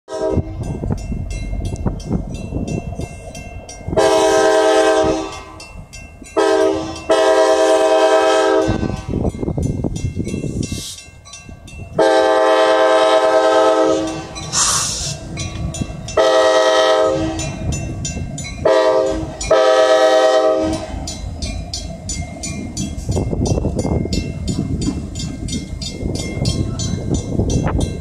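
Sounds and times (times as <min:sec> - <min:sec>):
locomotive air horn blasts: 0:00.1 - 0:00.8, 0:04.0 - 0:05.6, 0:06.4 - 0:09.2, 0:12.0 - 0:15.2, 0:16.2 - 0:17.6, 0:18.6 - 0:21.0
locomotive rumbling: 0:00.1 - 0:28.0
wheels clicking on rails: 0:12.9 - 0:28.0.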